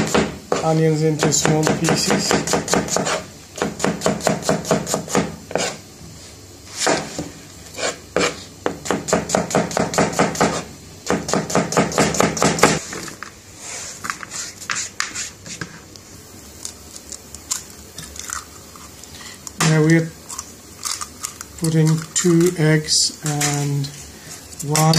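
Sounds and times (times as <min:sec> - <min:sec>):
knife chopping on cutting board: 0:00.0 - 0:05.8, 0:06.8 - 0:12.8.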